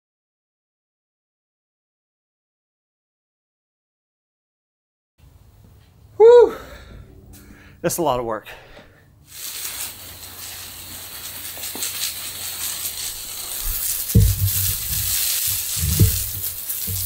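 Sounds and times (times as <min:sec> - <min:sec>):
hose nozzle spraying water: 0:09.3 - 0:17.0
dull low thumps: 0:13.7 - 0:17.0.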